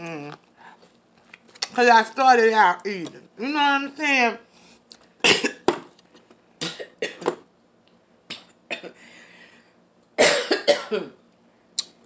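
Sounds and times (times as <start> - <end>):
woman coughing: 5.2 - 5.7, 6.6 - 7.3, 8.3 - 9.0, 10.2 - 11.2.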